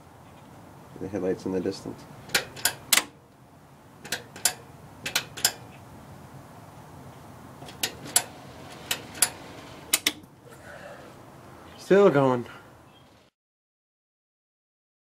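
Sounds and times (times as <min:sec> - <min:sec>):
switches clicking: 0:04.0 - 0:05.6, 0:08.9 - 0:10.3.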